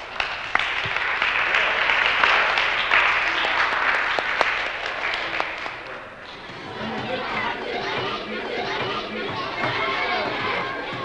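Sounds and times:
children applauding: 0.0 - 6.0.

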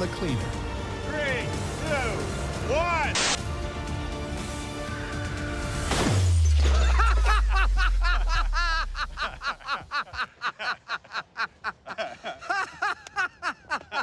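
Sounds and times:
chuckling laughter: 6.8 - 14.0.

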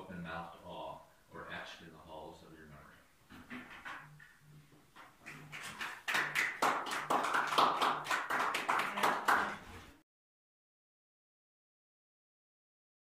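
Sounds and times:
audience clapping: 5.0 - 10.0.

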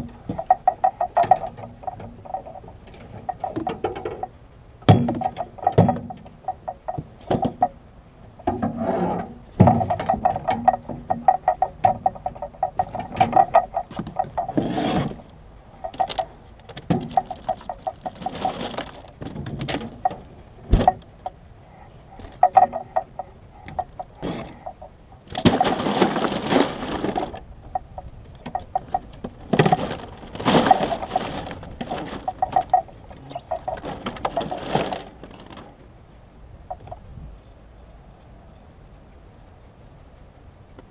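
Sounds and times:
knocks against metal boat: 4.9 - 6.3.

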